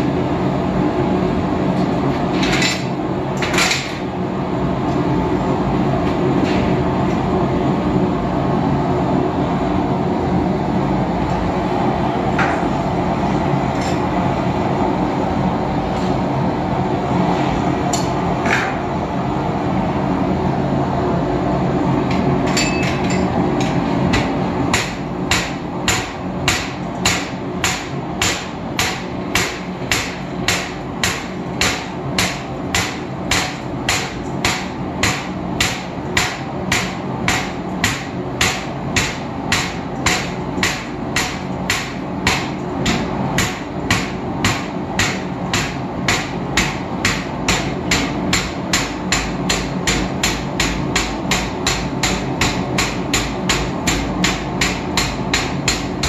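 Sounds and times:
hammer striking iron on anvil: 22.5s - 56.0s.

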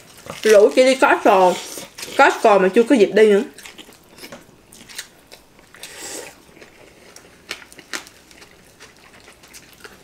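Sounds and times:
soft chewing: 3.5s - 10.0s.

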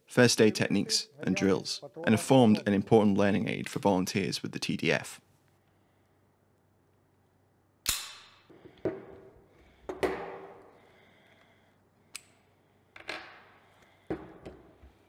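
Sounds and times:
pistol metallic clicks and clacks: 7.9s - 8.5s.

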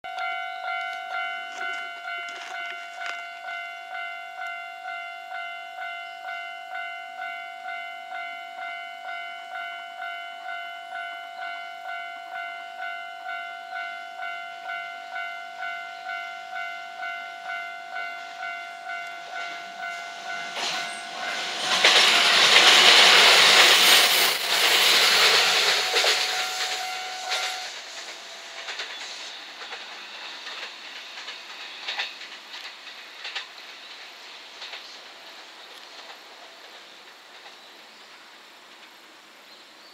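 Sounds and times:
level crossing warning bell: 0.0s - 24.0s, 25.1s - 28.9s
electric train passing: 0.1s - 39.9s.

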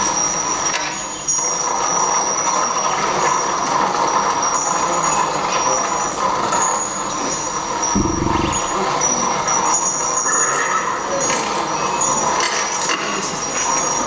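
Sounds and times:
thin high whine: 7.3s - 9.6s.

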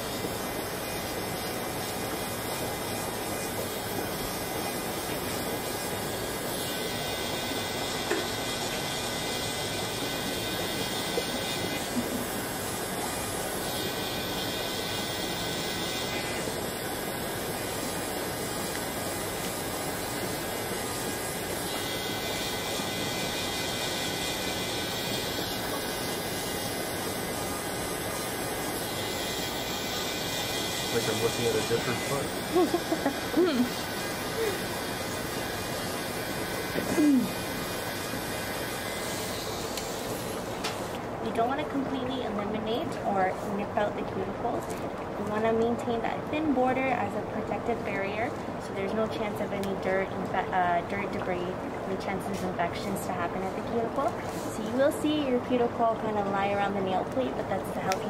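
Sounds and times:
electric nail file whirring: 0.0s - 41.0s.

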